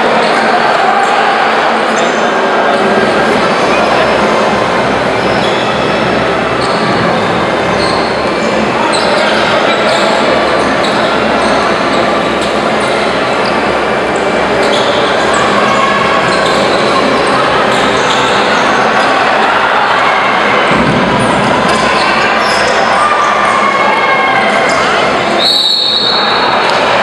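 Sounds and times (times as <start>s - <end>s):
crowd noise in arena: 0.0s - 27.0s
sneakers squeaking: 4.9s - 19.2s, 20.7s - 23.5s.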